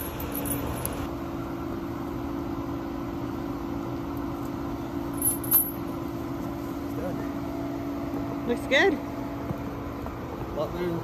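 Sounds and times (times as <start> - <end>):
metallic clinks of snow chains: 0.0 - 0.9, 5.2 - 5.8
van engine idling: 0.0 - 11.0.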